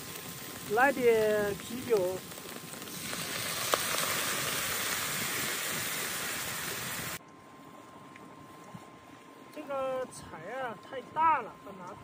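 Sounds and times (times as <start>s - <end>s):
beer sizzling in a hot wok: 0.0s - 7.2s.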